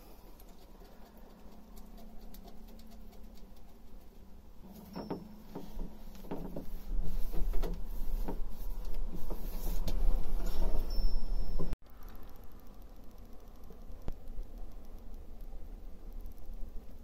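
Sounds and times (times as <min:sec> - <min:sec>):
low rumble: 0:07.8 - 0:17.0.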